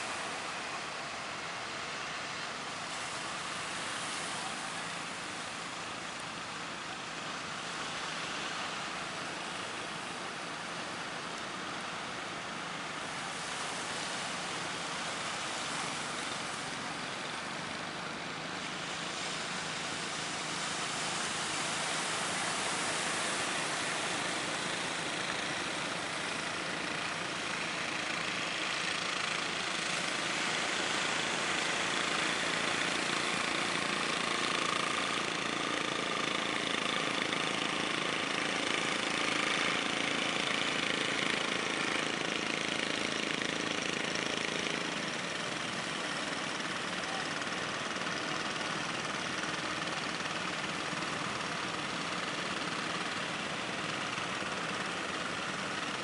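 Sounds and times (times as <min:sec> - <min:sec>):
boat engines running: 0:00.0 - 0:56.0
waves washing: 0:13.3 - 0:42.6.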